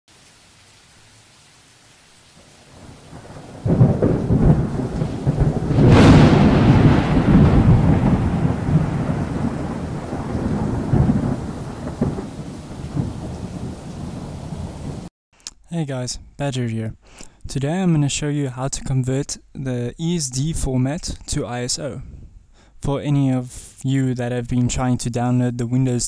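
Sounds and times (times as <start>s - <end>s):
thunder rumbling: 2.6s - 15.1s
sharp thunder crack: 2.8s - 15.1s.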